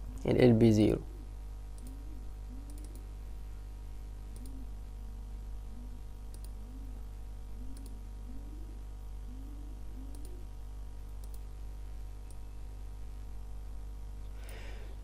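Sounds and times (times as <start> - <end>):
low electrical hum: 0.0 - 15.0
computer mouse clicks: 1.7 - 2.0, 2.6 - 3.1, 4.3 - 4.6, 6.3 - 6.6, 7.7 - 8.0, 10.1 - 10.4, 11.2 - 11.5.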